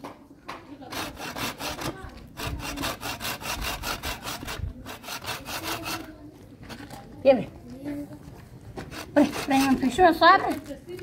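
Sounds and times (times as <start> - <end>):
hand saw cutting wood: 0.8 - 6.2, 8.8 - 10.4.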